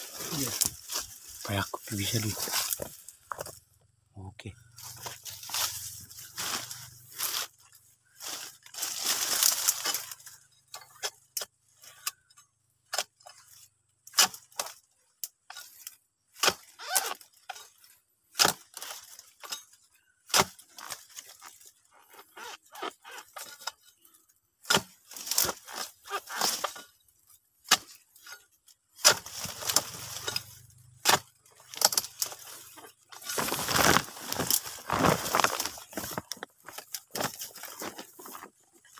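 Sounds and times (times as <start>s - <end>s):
dry fronds rustling: 0.0s - 3.7s, 4.6s - 11.0s, 13.2s - 38.9s
tool chopping palm stalks: 12.8s - 38.9s.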